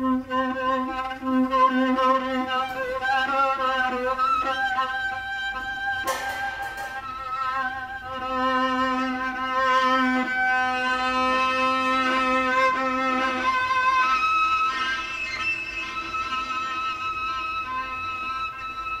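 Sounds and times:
string quartet bowed notes: 0.0 - 19.0
low held string note: 6.0 - 7.7.

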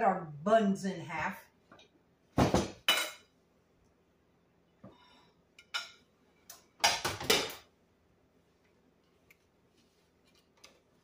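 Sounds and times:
light kitchen clicks and knocks: 5.8 - 7.7.

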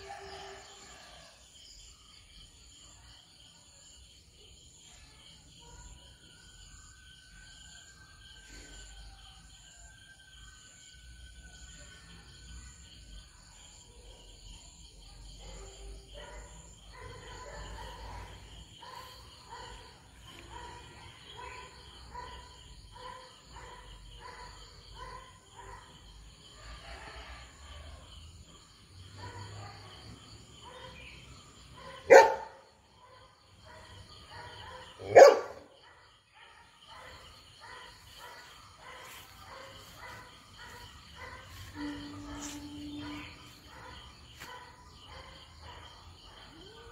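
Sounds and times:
dog barking: 5.5 - 6.8, 11.6 - 46.9
high insect drone: 37.4 - 46.9.

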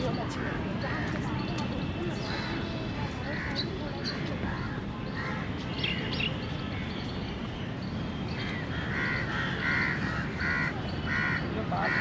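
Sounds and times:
background murmur: 0.0 - 7.5
crow cawing: 8.4 - 12.0.

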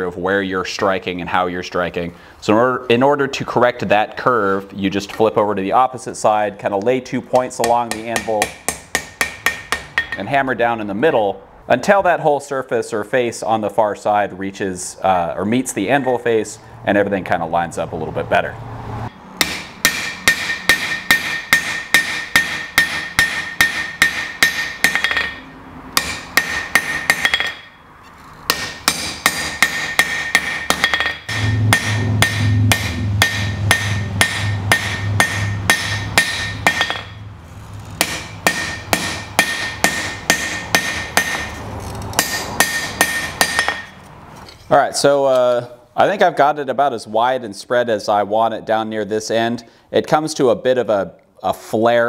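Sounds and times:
hammer striking hot steel on anvil: 7.4 - 10.3, 19.1 - 27.8, 28.5 - 37.2, 38.0 - 41.6, 42.2 - 44.0.

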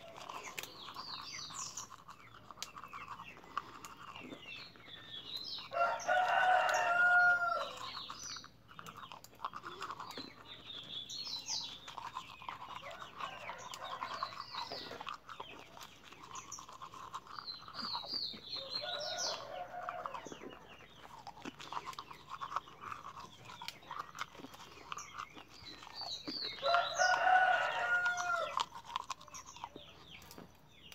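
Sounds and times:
rooster crowing: 5.7 - 7.8, 18.6 - 20.2, 26.6 - 28.6.

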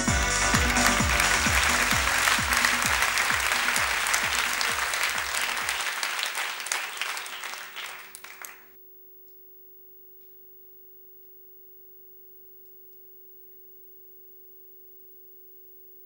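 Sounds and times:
music with low drum beat: 0.0 - 5.0
audience applauding: 0.0 - 8.8
faint steady hum: 8.8 - 16.0.

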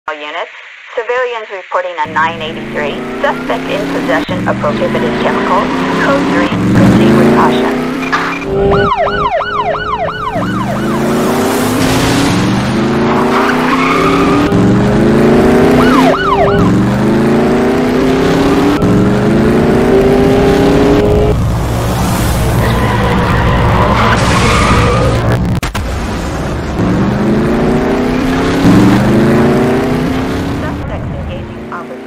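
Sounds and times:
police siren yelp: 2.0 - 7.8, 8.5 - 11.4, 15.7 - 17.0
car engine accelerating hard: 2.4 - 25.6, 26.4 - 32.0.

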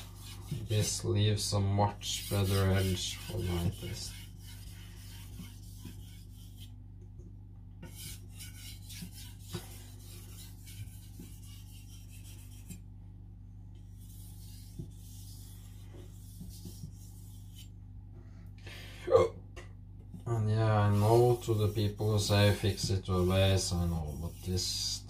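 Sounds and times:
steady low hum: 0.0 - 25.0
knife scraping on whetstone: 2.0 - 6.7, 7.8 - 12.8, 14.0 - 17.7, 20.9 - 24.7.

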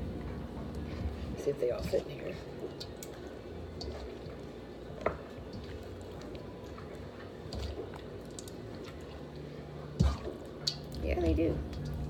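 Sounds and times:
wet squishing of raw chicken: 2.6 - 11.0.

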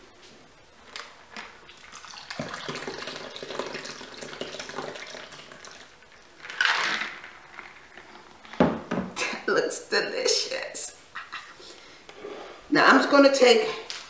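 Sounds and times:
liquid pouring into glass: 1.7 - 6.0.

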